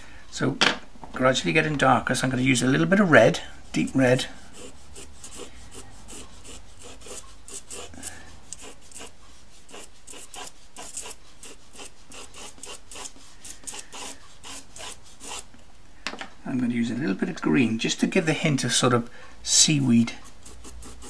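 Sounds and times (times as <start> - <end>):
pencil scratching on paper: 3.7 - 15.5, 20.2 - 21.0.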